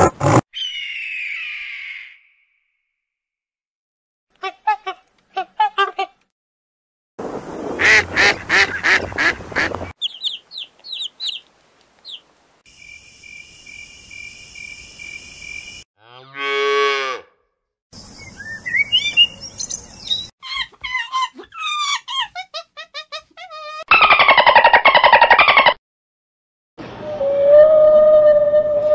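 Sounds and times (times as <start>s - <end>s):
quick chirping calls: 10.0s - 12.3s.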